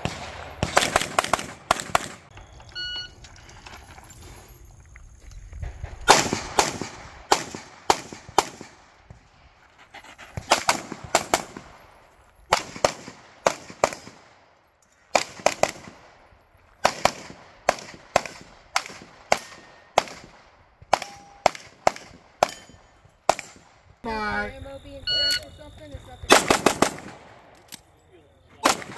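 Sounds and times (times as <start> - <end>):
pistol shots: 0.0 - 2.3, 6.0 - 8.9, 10.5 - 11.8, 12.5 - 14.4, 15.1 - 16.2, 16.8 - 23.8, 26.3 - 27.5, 28.6 - 28.9.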